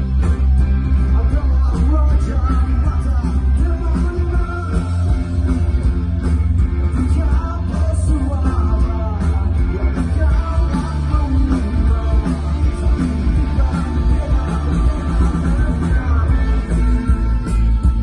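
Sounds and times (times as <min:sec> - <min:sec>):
live rock band: 0:00.0 - 0:18.0.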